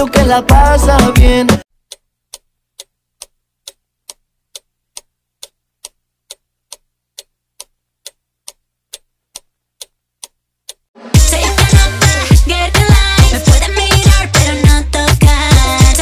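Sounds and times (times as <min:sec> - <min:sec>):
clock ticking: 0:00.1 - 0:16.0.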